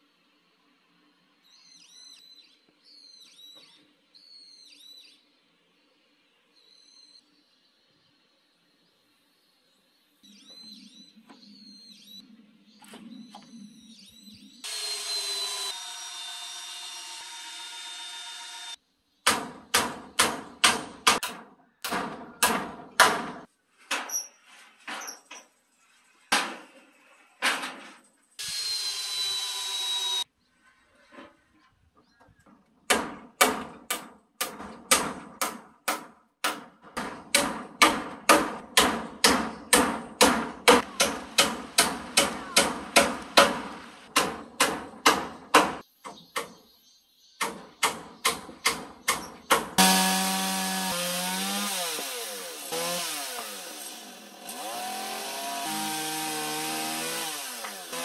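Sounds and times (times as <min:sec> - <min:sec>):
power tool running: 0:14.6 - 0:18.8, 0:28.4 - 0:30.2, 0:49.8 - 0:58.0
hammer driving nails into timber: 0:32.9 - 0:45.8.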